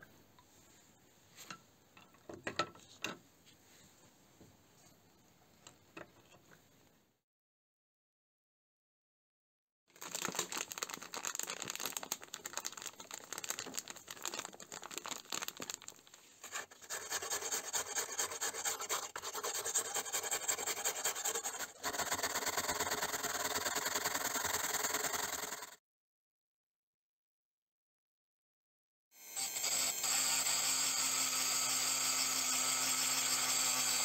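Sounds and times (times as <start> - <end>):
stiff brush scrubbing metal: 16.4 - 24.3.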